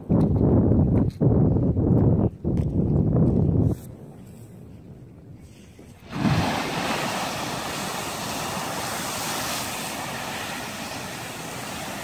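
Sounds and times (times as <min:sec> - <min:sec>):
rush of water and steam: 0:05.9 - 0:12.0
geyser burst with low thump: 0:06.0 - 0:12.0.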